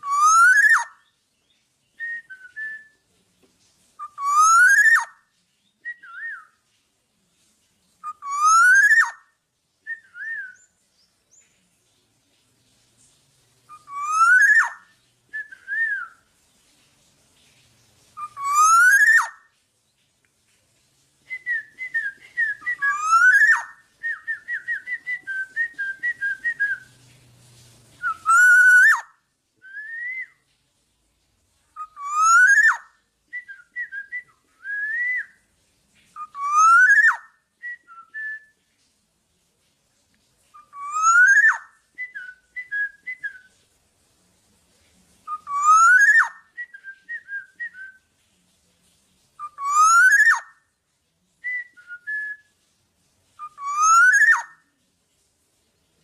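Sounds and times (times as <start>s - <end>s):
bird rising whistle call: 21.3s - 26.9s.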